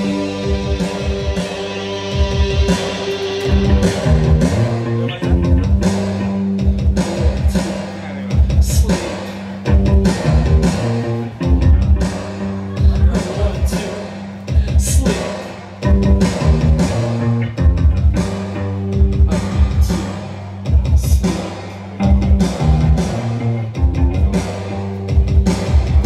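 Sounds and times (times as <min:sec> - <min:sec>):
held bass notes: 0:00.0 - 0:07.6, 0:09.5 - 0:15.0, 0:15.8 - 0:26.0
drum kit hits: 0:00.0 - 0:13.8, 0:14.5 - 0:26.0
electric guitar: 0:00.0 - 0:26.0
live post-punk band playing: 0:00.0 - 0:26.0.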